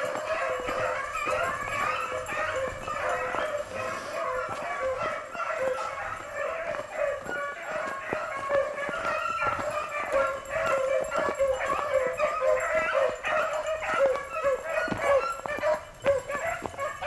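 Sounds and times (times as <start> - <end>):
beagles baying: 0.0 - 17.0.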